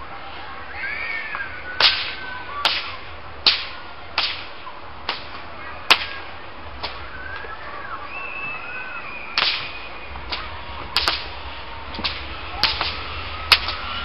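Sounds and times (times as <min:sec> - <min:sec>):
whip cracking: 0:01.8 - 0:07.1, 0:09.3 - 0:14.0.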